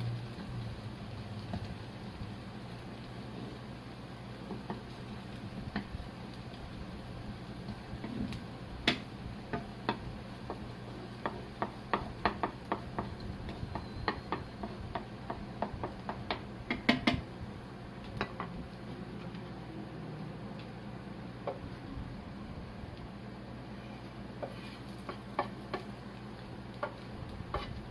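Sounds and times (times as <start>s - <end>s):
wooden spatula tapping a frying pan: 0.3s - 1.9s, 4.3s - 6.6s, 7.5s - 17.3s, 18.0s - 18.7s, 21.4s - 21.7s, 24.4s - 27.9s.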